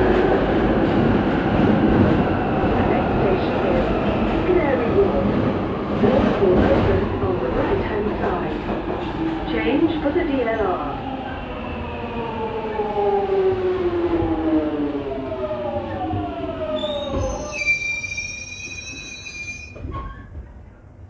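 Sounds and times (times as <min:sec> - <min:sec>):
high steady brake squeal: 0:16.8 - 0:20.2.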